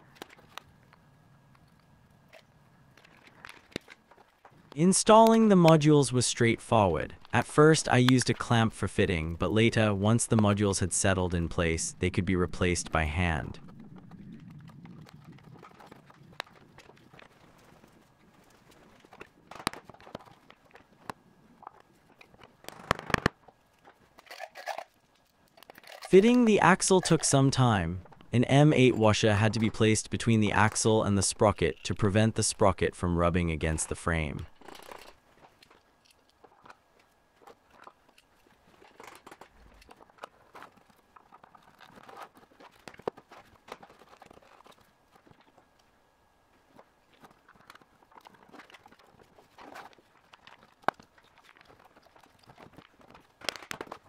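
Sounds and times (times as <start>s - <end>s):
handling rustles: 34.5s - 54.0s.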